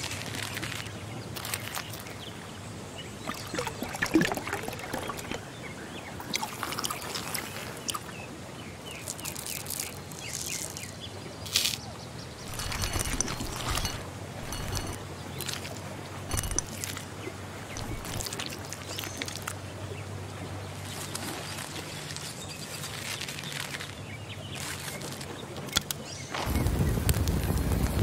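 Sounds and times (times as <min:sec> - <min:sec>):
sticks clicking and rustling: 0:00.0 - 0:02.1, 0:09.1 - 0:10.9, 0:12.5 - 0:17.1, 0:17.7 - 0:19.6
birds chirping: 0:01.1 - 0:26.7.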